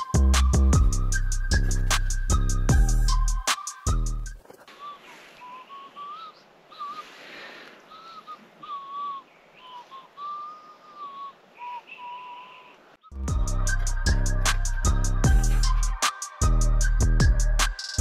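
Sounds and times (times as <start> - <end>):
music: 0.0 - 4.4, 13.1 - 18.0
person whistling tune: 0.0 - 7.2, 7.9 - 18.0.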